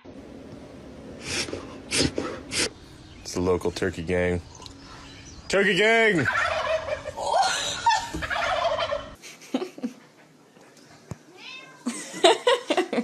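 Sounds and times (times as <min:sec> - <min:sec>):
wild turkeys calling: 0:04.4 - 0:09.2.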